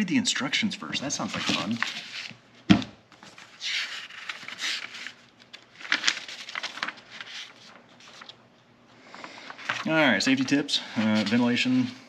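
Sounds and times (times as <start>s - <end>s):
paper rustling and crinkling: 1.0s - 8.4s, 9.1s - 11.9s.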